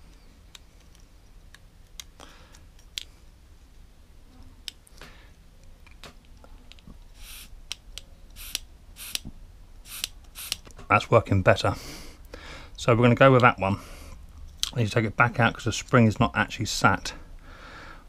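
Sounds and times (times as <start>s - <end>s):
short puffs of air: 7.2s - 7.5s, 8.4s - 9.2s, 9.9s - 10.6s.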